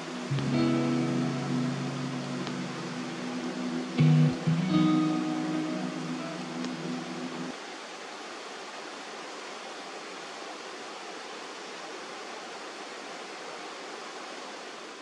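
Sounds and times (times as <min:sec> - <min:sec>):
guitar music: 0:00.0 - 0:07.5
stream water over rocks: 0:00.0 - 0:15.0.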